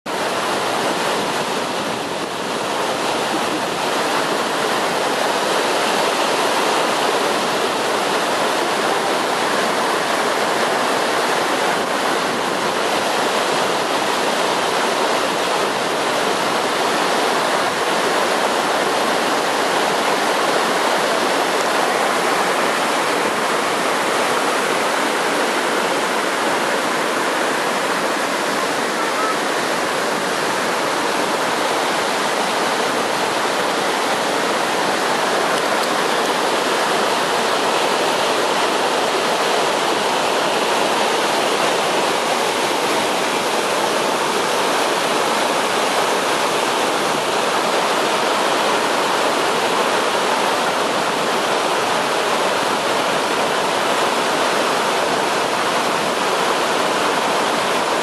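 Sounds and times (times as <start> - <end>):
waterfall rushing: 0.1 - 58.0.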